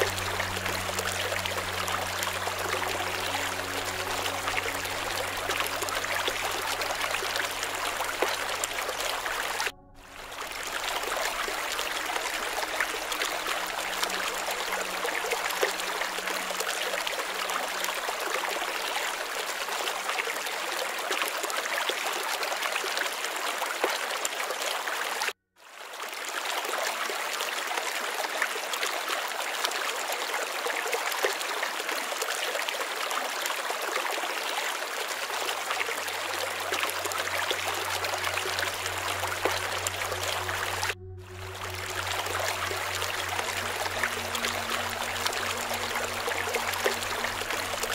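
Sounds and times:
flowing water rushing: 0.0 - 47.9.

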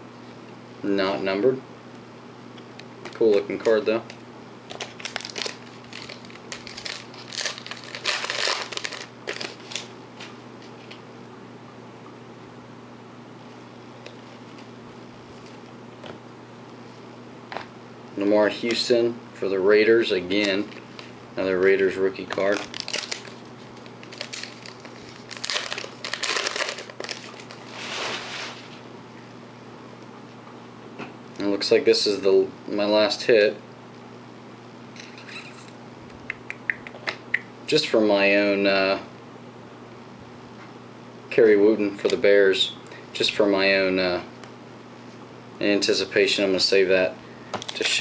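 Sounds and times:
foil wrapper crinkling: 4.7 - 9.9, 22.2 - 28.8.

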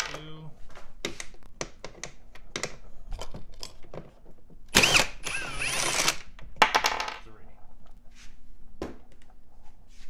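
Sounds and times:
cordless drill spinning: 4.7 - 6.2.

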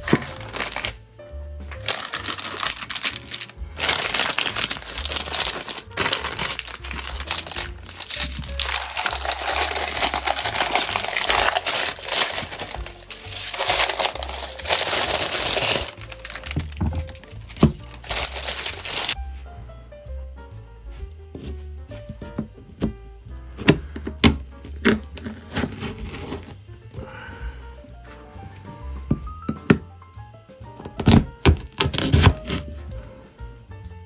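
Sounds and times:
parchment paper crinkling: 0.0 - 1.0, 1.7 - 19.2, 24.8 - 26.6, 31.0 - 32.8
background music: 0.0 - 34.0.

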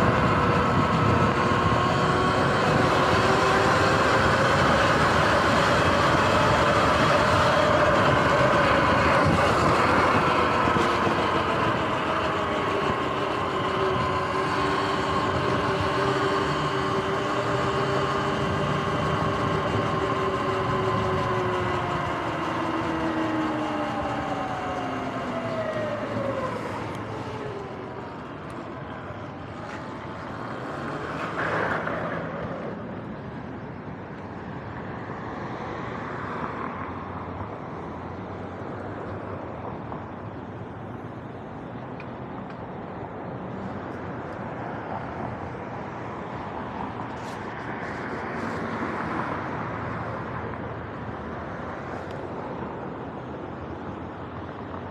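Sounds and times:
electric motorbike motor whine: 0.0 - 33.1
road traffic noise: 0.0 - 54.9.

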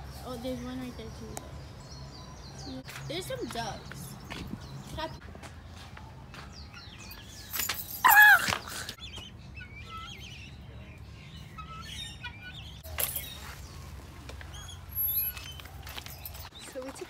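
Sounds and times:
birds chirping and whistling: 0.1 - 17.0.

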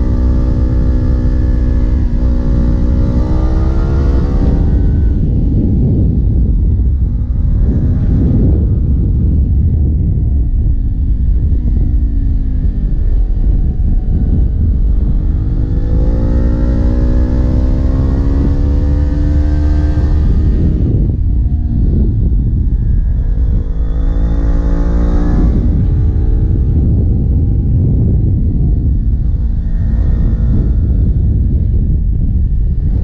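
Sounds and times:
motorcycle engine revving: 0.0 - 33.0.

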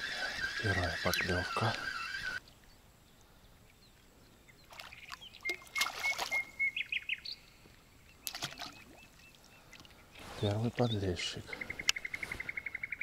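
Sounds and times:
birds chirping and trilling: 0.0 - 13.0
fish splashing at surface: 8.3 - 8.8.

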